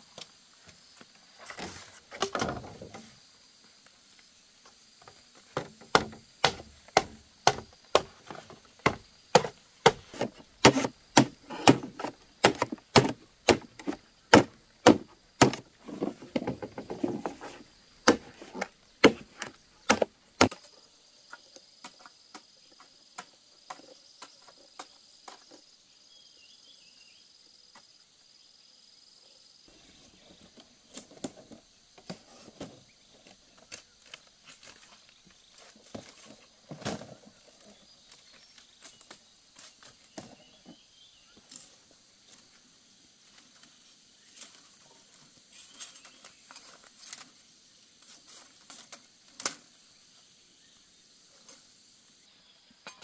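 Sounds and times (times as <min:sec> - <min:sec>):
insect drone: 0:00.0 - 0:53.0
bamboo strips knocking and rustling: 0:00.1 - 0:03.2, 0:04.6 - 0:25.7, 0:29.7 - 0:40.8, 0:43.3 - 0:47.4, 0:48.0 - 0:49.8
machete chopping bamboo: 0:05.6 - 0:17.2, 0:18.0 - 0:20.7.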